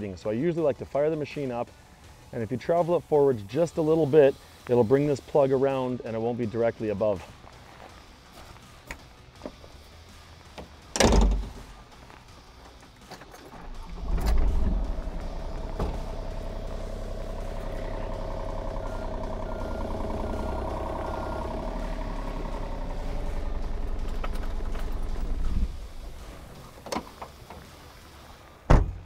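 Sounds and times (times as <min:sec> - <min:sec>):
diesel engine running: 0:07.3 - 0:28.7
short beeps: 0:18.7 - 0:21.5.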